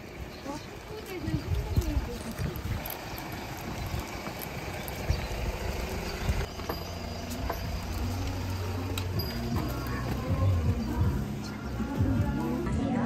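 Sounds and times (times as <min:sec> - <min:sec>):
low rumble of wind or traffic: 0:00.0 - 0:13.0
footsteps: 0:06.5 - 0:12.7.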